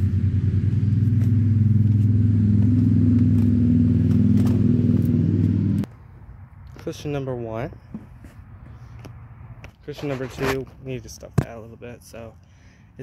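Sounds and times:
engine running with fluttering hum: 0:00.0 - 0:05.9.

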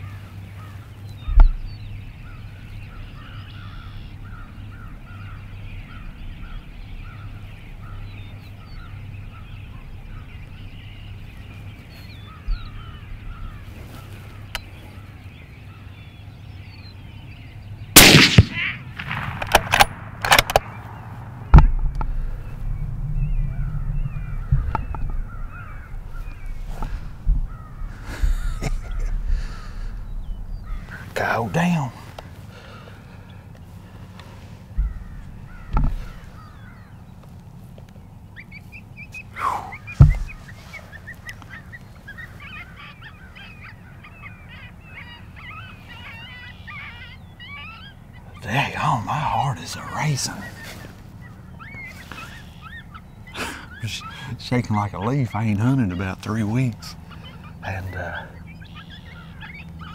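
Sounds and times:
crows cawing in the distance: 0:00.0 - 0:59.9
rifle shot: 0:18.0 - 0:20.9
sharp knocks: 0:40.0 - 0:40.4.

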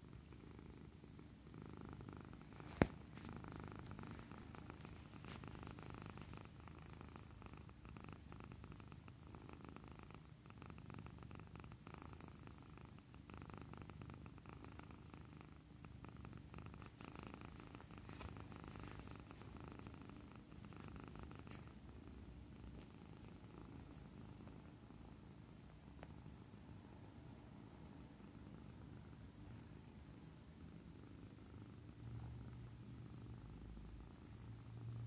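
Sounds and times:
cat purring: 0:00.0 - 0:35.0.

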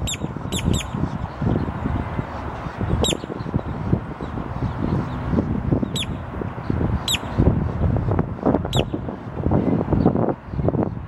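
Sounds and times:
grackle whistled calls: 0:00.0 - 0:01.0, 0:05.9 - 0:06.2, 0:07.1 - 0:07.3, 0:08.7 - 0:09.0
low rumbling noise: 0:00.0 - 0:11.0.

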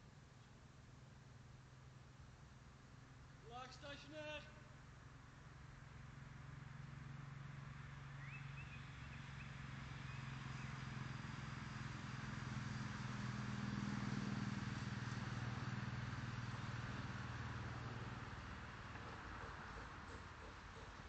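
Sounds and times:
engine humming: 0:04.5 - 0:21.0.

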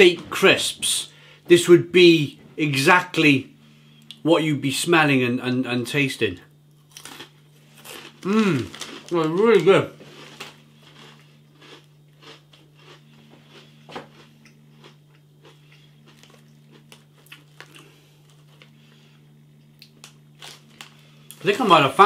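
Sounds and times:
faint low hum: 0:00.0 - 0:22.0
person crunching biscuit sticks: 0:06.8 - 0:21.8.

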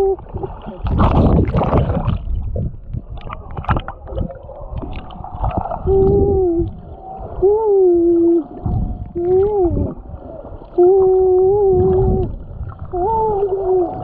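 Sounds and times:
person humming underwater: 0:00.0 - 0:01.0, 0:05.0 - 0:14.0
water gurgles: 0:00.0 - 0:14.0
water splashing and bubbling: 0:00.0 - 0:14.0.

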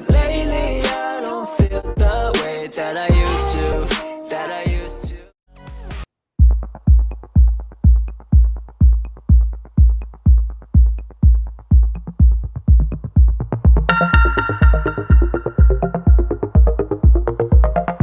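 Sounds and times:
drum machine kick beat: 0:00.0 - 0:01.0, 0:01.6 - 0:02.3, 0:03.1 - 0:04.0, 0:04.7 - 0:05.3, 0:06.4 - 0:18.0
synth melody: 0:13.9 - 0:18.0.

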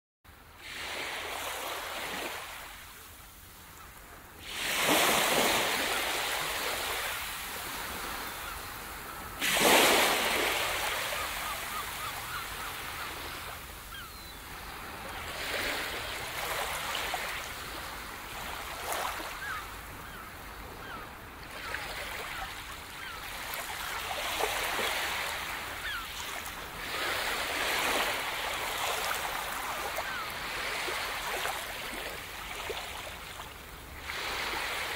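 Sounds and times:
waves breaking on beach: 0:00.4 - 0:34.9.

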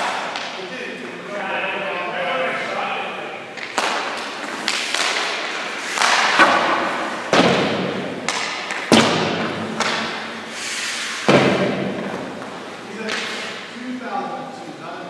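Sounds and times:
skate blades scraping ice: 0:03.6 - 0:13.6.

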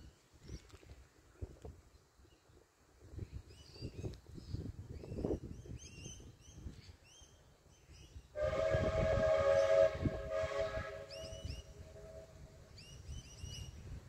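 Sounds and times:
steam hissing: 0:08.4 - 0:12.5
steam locomotive whistle: 0:08.4 - 0:12.8.

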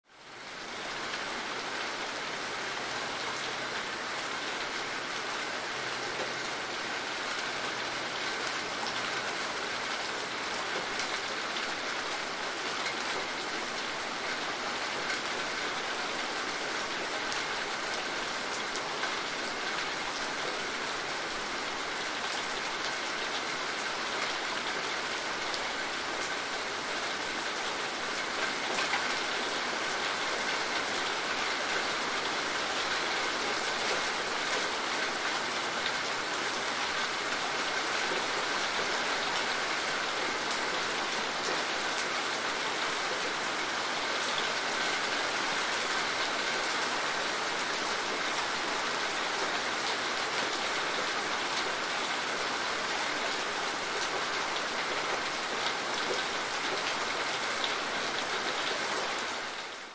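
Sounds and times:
rain falling: 0:00.1 - 0:59.9.

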